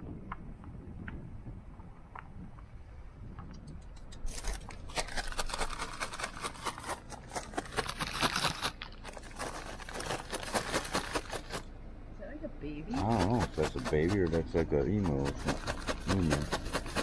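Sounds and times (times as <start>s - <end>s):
animal pecking feed pellets: 3.4s - 11.7s, 12.9s - 17.0s.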